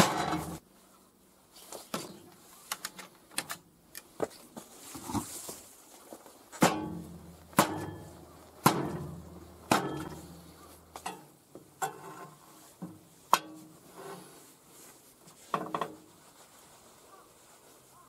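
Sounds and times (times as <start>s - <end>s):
hammer striking steel: 6.6s - 11.3s.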